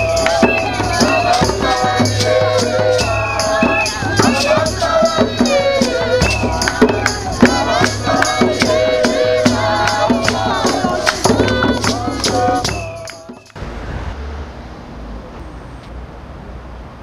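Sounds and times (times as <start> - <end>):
drums and rattle percussion: 0.0 - 13.6
voices singing: 0.0 - 13.6.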